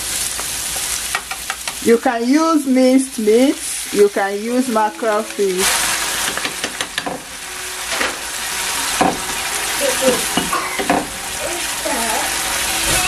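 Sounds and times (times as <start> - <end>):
sauce sizzling in a frying pan: 0.0 - 13.0
spoon scraping and knocking pan: 5.0 - 7.3.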